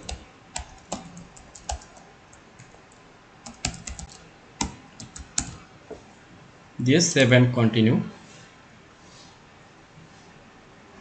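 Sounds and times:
keyboard typing: 0.0 - 5.6.

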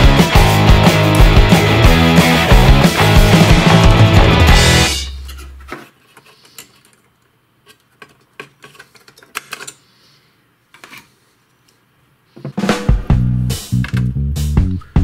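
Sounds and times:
background music: 0.0 - 5.2, 12.7 - 15.0.

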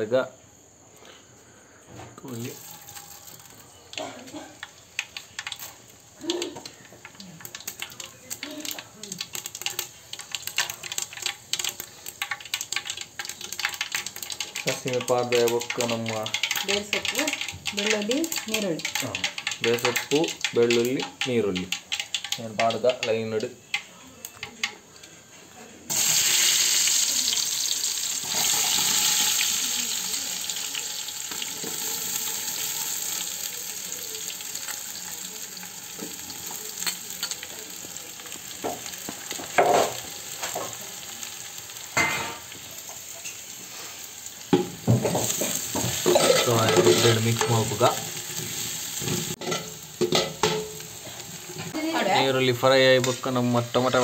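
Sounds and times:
onions frying in oil: 0.0 - 54.0
spoon scraping pan: 44.6 - 52.2.

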